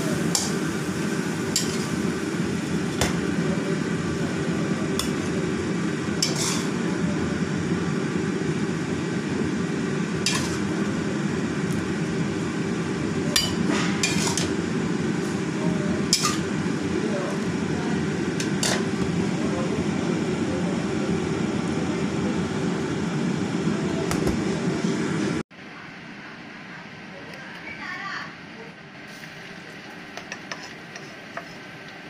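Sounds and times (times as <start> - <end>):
metal spatula scraping a wok: 6.2 - 6.8, 10.2 - 10.7, 13.4 - 14.6, 16.1 - 16.5, 18.4 - 18.9.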